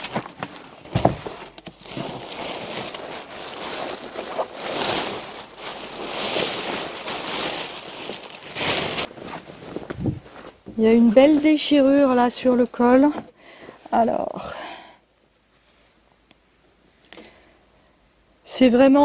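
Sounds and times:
plastic wrapping crinkling: 0.0 - 10.6.

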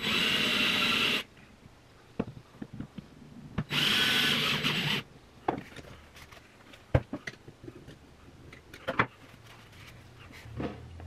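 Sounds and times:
cordless drill spinning cutter: 0.0 - 1.3, 3.7 - 5.0.

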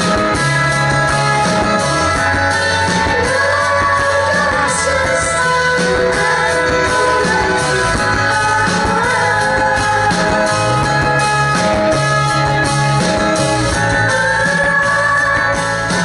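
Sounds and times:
live rock band playing: 0.0 - 16.0
woman singing: 0.0 - 16.0.

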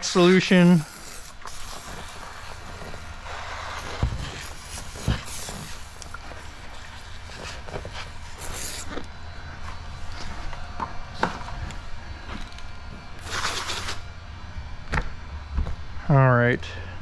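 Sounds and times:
pressure sprayer hissing spurts: 0.0 - 9.0, 13.2 - 14.0.

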